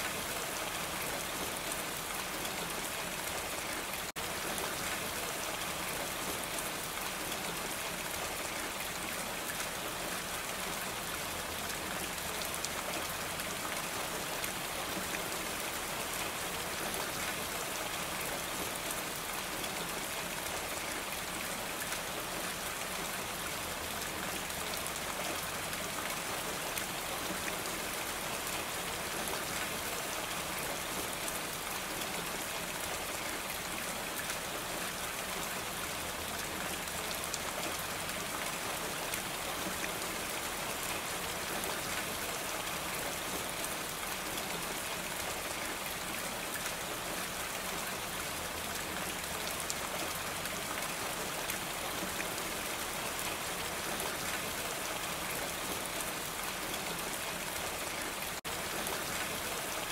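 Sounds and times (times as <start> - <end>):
rain falling on a roof: 0.0 - 59.9.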